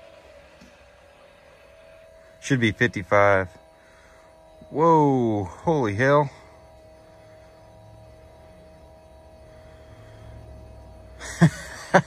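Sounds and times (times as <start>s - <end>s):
fuel pump whining: 0.0s - 12.0s.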